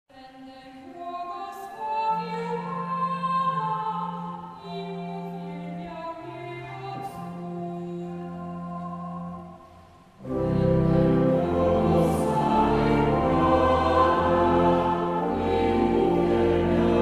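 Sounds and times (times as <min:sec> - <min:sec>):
church organ: 0:10.2 - 0:17.0
oboe melody: 0:10.2 - 0:17.0.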